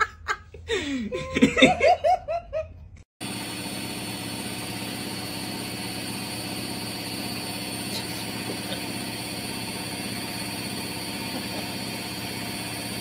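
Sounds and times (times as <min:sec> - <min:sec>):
person laughing: 0:00.0 - 0:02.7, 0:07.9 - 0:09.2, 0:11.1 - 0:12.1
washing machine humming: 0:03.2 - 0:13.0.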